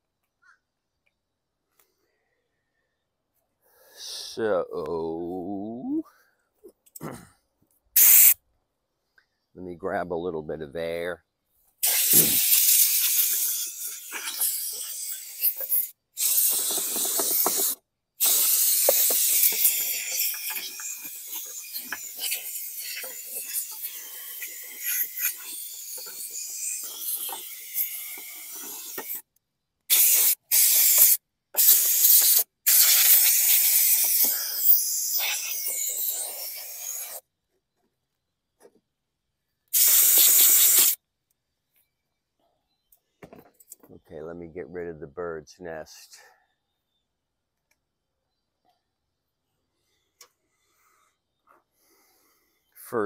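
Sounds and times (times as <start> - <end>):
air blow gun hissing: 8.0 - 8.4, 11.8 - 29.2, 29.9 - 37.2, 39.7 - 41.0.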